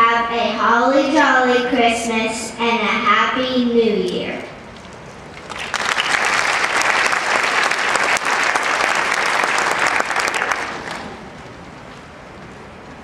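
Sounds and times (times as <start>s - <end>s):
audience applauding: 5.3s - 11.3s.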